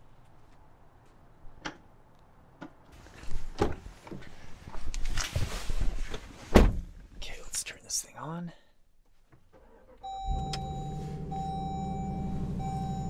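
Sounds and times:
door thump: 6.5s - 6.9s.

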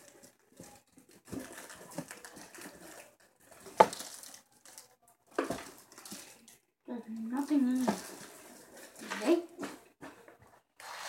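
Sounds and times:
plastic packaging crinkling: 0.0s - 6.6s, 7.3s - 9.4s.

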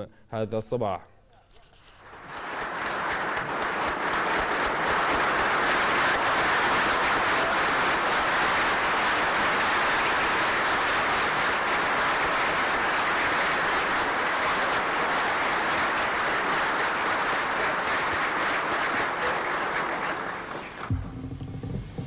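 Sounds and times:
audience applause: 1.9s - 21.8s.

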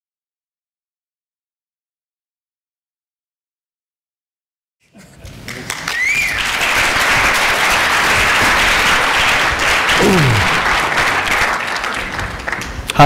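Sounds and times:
audience applauding: 5.2s - 13.0s
whistle: 5.9s - 6.5s.

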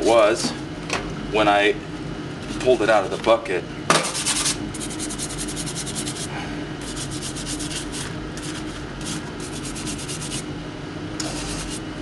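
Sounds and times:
brush scraping metal: 4.2s - 10.4s, 11.2s - 11.8s.

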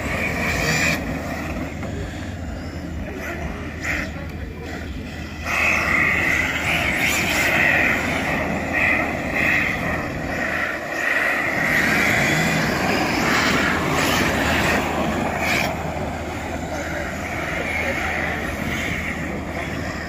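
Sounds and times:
electric rc car motors whining: 0.0s - 20.0s
steady background din: 0.0s - 20.0s.

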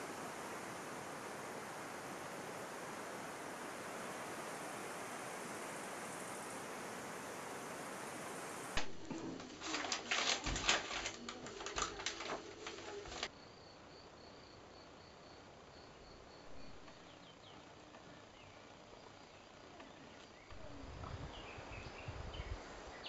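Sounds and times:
bags crackling and rustling: 8.8s - 13.3s
small birds chirping faintly: 12.3s - 23.0s.

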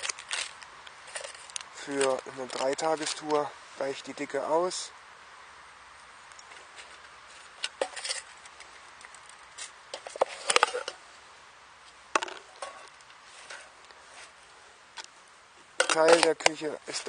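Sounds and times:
metal mug clinking: 15.8s - 16.3s.

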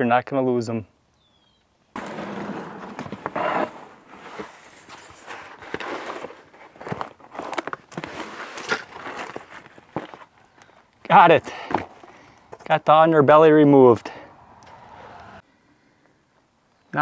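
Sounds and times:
rustling and scraping on gravel: 2.0s - 10.9s.

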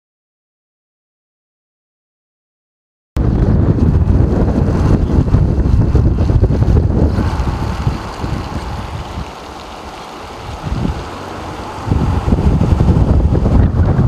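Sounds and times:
wind buffeting microphone: 3.2s - 14.0s.

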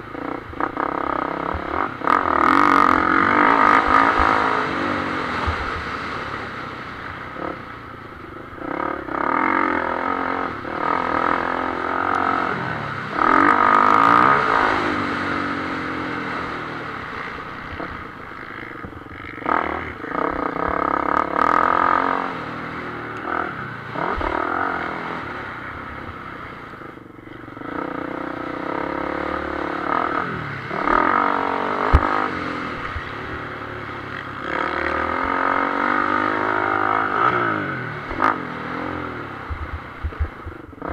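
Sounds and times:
motocross bike engine revving: 0.0s - 40.9s.

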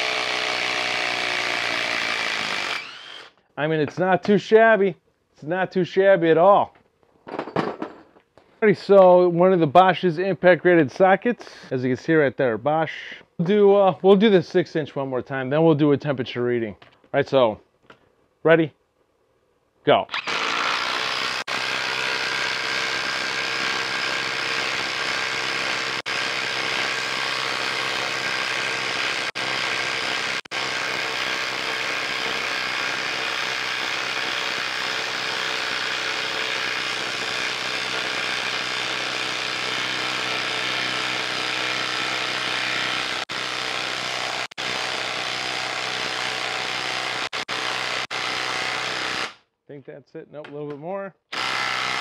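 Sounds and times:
impact driver hammering: 20.1s - 49.4s, 51.3s - 52.0s.

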